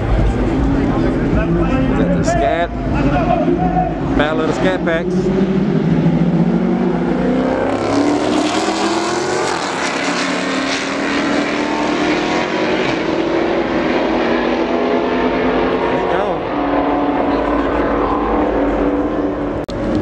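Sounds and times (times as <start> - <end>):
race car engines accelerating: 0.0 - 20.0.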